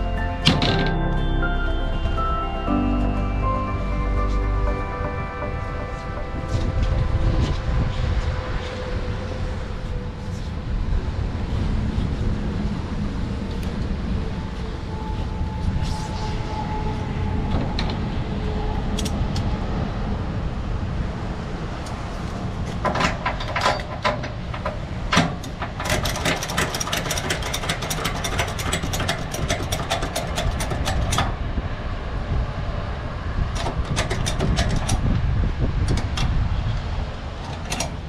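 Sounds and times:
steady low rumble: 0:00.0 - 0:25.8
ratchet clicking: 0:25.4 - 0:31.2.

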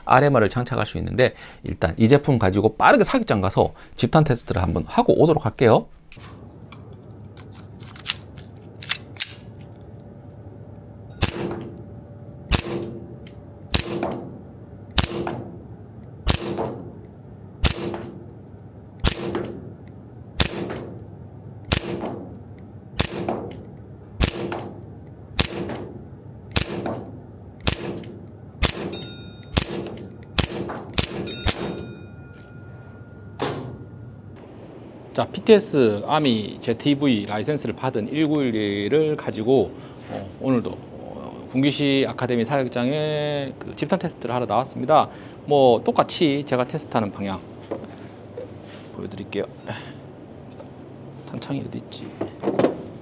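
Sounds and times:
airsoft pistol shots: 0:11.2 - 0:11.8, 0:12.5 - 0:13.0, 0:13.7 - 0:14.3, 0:14.9 - 0:15.5, 0:16.2 - 0:16.9, 0:17.6 - 0:18.2, 0:19.0 - 0:19.7, 0:20.4 - 0:21.0, 0:21.7 - 0:22.3, 0:23.0 - 0:23.6, 0:24.2 - 0:24.8, 0:25.4 - 0:31.9
metallic ring: 0:28.8 - 0:30.2, 0:31.1 - 0:34.4.

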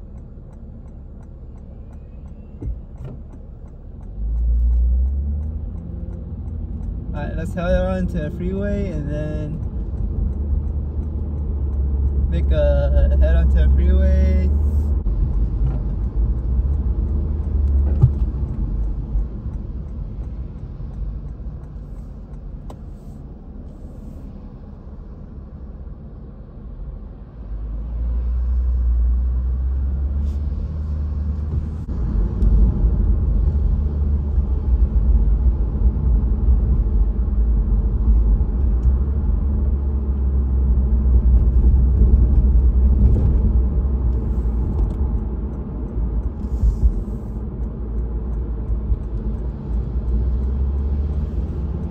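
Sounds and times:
car engine rumble: 0:00.0 - 0:51.9
tyres on wet road: 0:00.0 - 0:51.9.

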